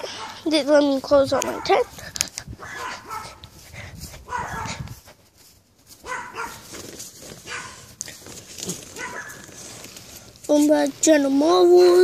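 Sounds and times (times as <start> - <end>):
dog barking: 0.1 - 0.4, 1.4 - 1.9, 2.6 - 3.4, 4.3 - 4.8, 6.0 - 6.7, 7.4 - 7.9, 8.9 - 9.4.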